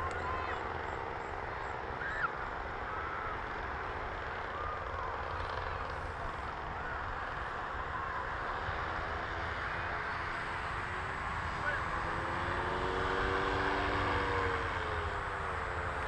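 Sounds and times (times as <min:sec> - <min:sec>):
distant paramotor engine droning: 0:00.0 - 0:16.0.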